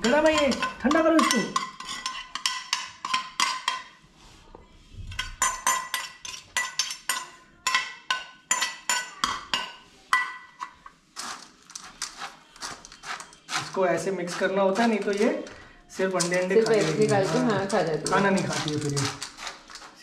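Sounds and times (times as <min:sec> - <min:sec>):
metal spoon clinking on dish: 0:00.0 - 0:04.0, 0:05.1 - 0:10.8, 0:16.2 - 0:19.9.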